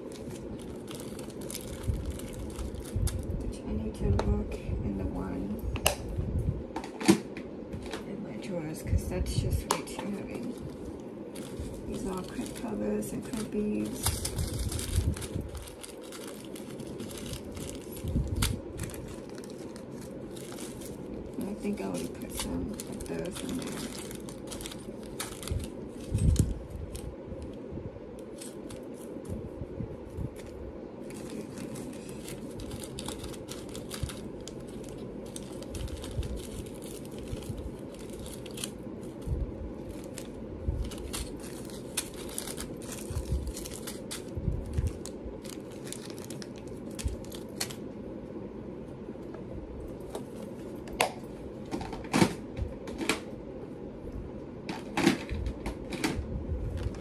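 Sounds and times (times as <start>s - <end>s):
plastic bags rustling: 0.0s - 3.6s, 10.0s - 27.6s, 28.2s - 29.4s, 30.0s - 47.9s, 54.8s - 57.0s
steady low hum: 0.0s - 57.0s.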